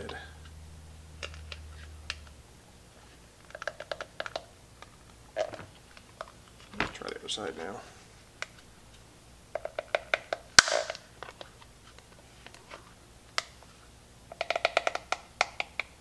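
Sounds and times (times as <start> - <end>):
sharp plastic snap: 9.6 - 11.4.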